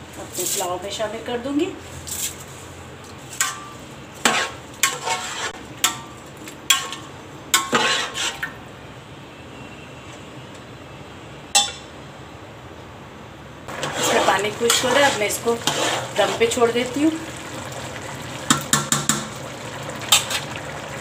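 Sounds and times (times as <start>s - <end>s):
metal spoon clinking on pot: 11.6s - 11.9s.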